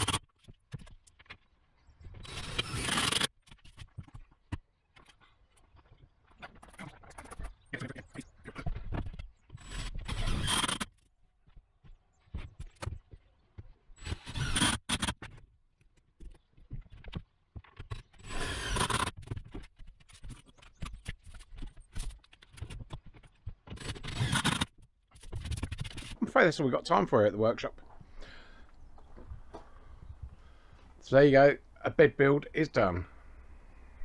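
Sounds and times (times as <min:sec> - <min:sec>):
cordless drill driving screws: 0:02.2 - 0:03.3, 0:09.6 - 0:10.9, 0:14.0 - 0:15.3, 0:18.2 - 0:19.2, 0:23.8 - 0:24.7.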